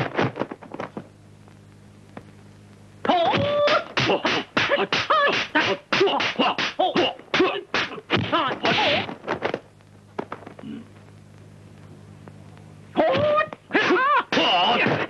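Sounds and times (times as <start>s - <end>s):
martial arts fighting cries: 3.0s - 9.1s, 13.0s - 15.0s.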